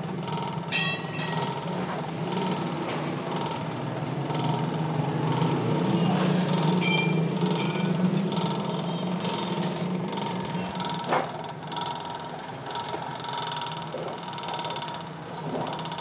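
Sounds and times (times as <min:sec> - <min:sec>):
forge blower humming: 0:00.0 - 0:16.0
tools and coal clinking: 0:00.7 - 0:01.9, 0:06.8 - 0:08.3.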